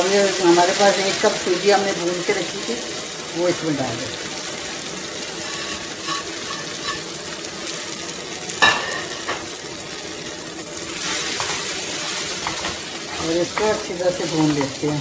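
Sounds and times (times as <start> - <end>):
vegetables sizzling in oil: 0.0 - 15.0
metal spoon stirring: 5.4 - 7.1.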